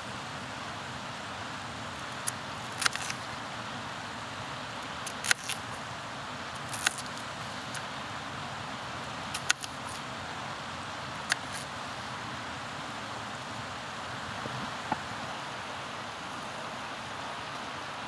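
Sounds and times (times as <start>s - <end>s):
river rushing: 0.0s - 18.0s.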